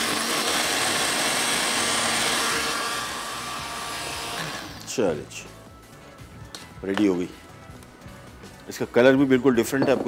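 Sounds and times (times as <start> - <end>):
blender motor whirring: 0.0 - 4.9.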